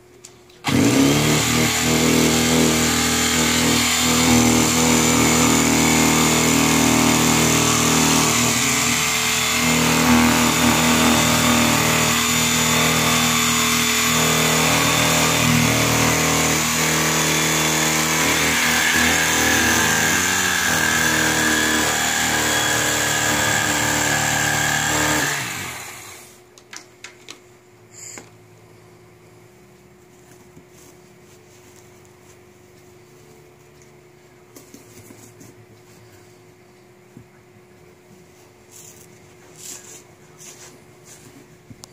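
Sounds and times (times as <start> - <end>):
electric knife motor running: 0.6 - 26.3.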